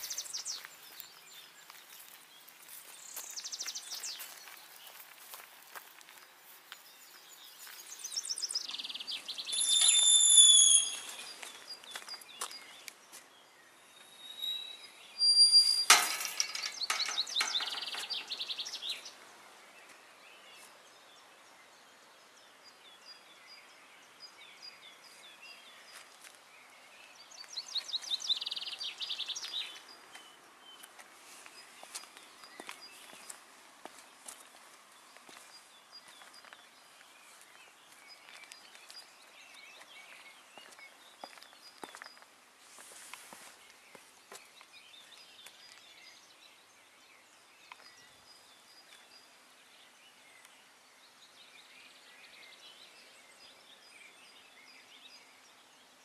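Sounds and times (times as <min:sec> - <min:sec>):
whistled bird notes: 0:08.0 - 0:12.3, 0:13.9 - 0:19.1
bird descending trill: 0:09.3 - 0:11.6, 0:14.1 - 0:16.0
loud sharp bird call: 0:09.4 - 0:11.5.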